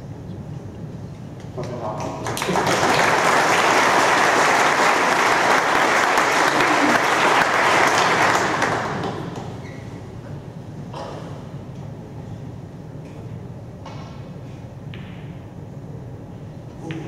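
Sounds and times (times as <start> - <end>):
audience applauding: 1.6 - 9.4.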